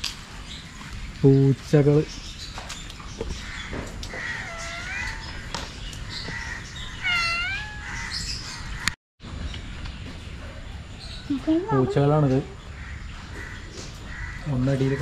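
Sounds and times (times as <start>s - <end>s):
cat meowing: 4.1s - 5.6s, 6.8s - 8.3s.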